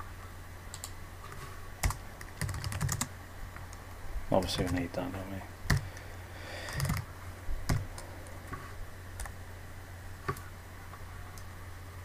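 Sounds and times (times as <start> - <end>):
low steady hum: 0.0 - 12.0
computer keyboard keystrokes: 1.8 - 3.1, 5.7 - 5.9, 6.7 - 7.1.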